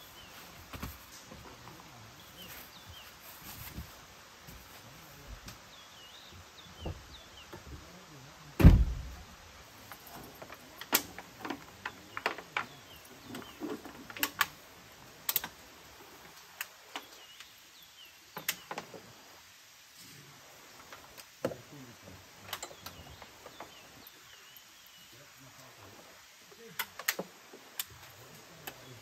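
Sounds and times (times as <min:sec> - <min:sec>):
heavy thump: 0:08.6 - 0:09.2
camping gear clicks and knocks: 0:09.8 - 0:14.6, 0:15.2 - 0:15.6, 0:22.5 - 0:24.2, 0:26.7 - 0:29.0.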